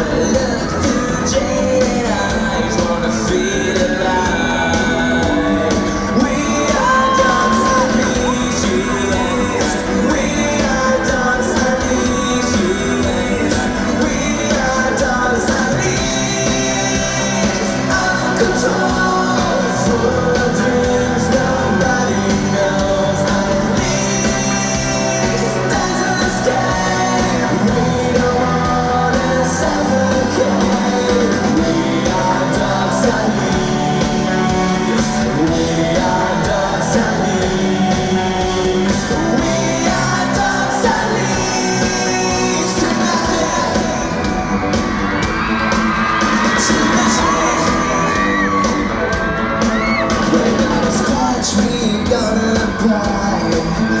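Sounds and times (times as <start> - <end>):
live rock band playing: 0.0 - 54.0
man singing lead vocals: 0.0 - 54.0.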